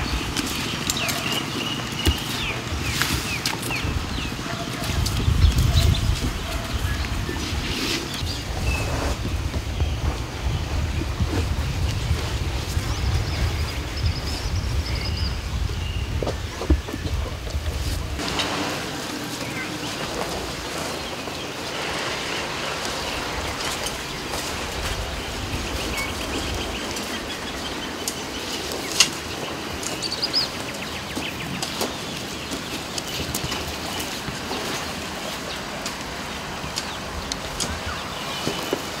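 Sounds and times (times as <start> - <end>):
birds chirping and calling: 0.0 - 39.0.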